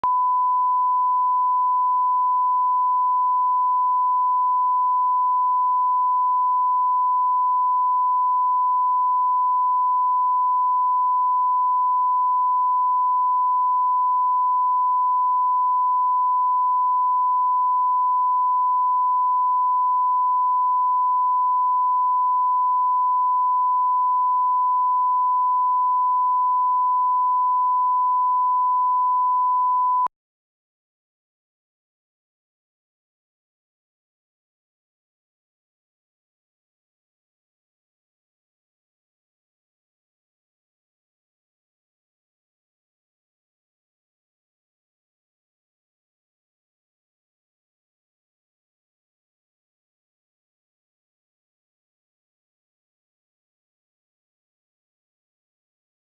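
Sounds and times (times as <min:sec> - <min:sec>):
steady test tone beep: 0:00.0 - 0:30.1.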